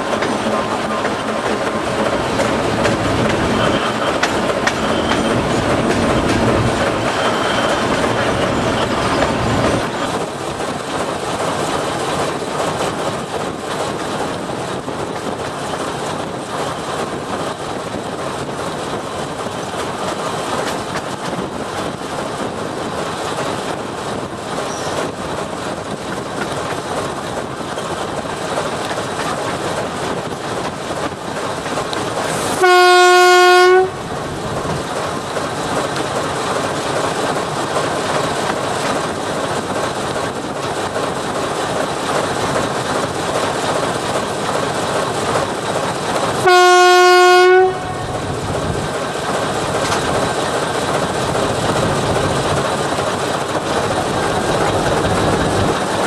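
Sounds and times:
wheels on rails: 0.0 - 32.7, 47.7 - 56.0
locomotive horn blasts: 32.6 - 34.0, 46.4 - 48.2.

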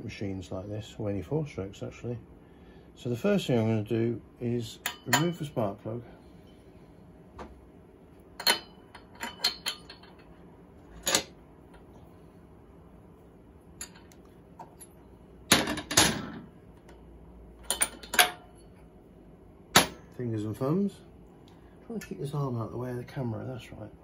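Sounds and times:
metal tools clicking and clinking: 8.4 - 11.3, 13.8 - 16.4, 17.6 - 18.8.

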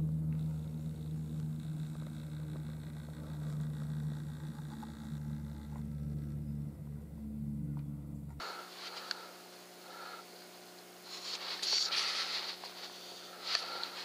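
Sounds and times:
low mechanical hum with pitched tones: 0.0 - 14.0.

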